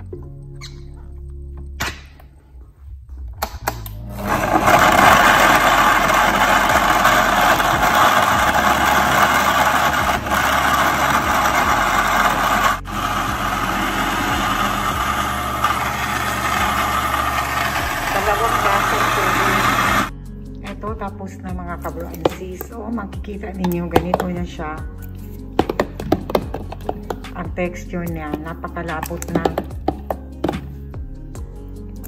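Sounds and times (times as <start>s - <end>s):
blender clicks: 3.7s - 20.1s
blender churning vegetables: 4.0s - 20.1s, 25.6s - 27.2s, 29.0s - 30.6s.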